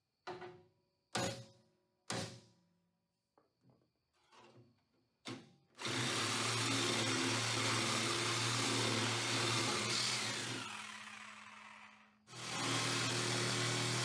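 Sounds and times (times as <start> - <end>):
reciprocating saw cutting steel: 5.8 - 14.0.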